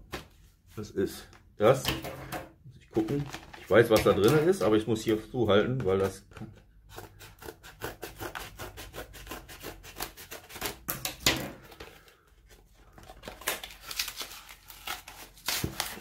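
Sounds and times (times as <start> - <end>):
cardboard and tape tearing: 6.9 - 11.7, 13.1 - 16.0
sharp cardboard crack: 13.4 - 16.0.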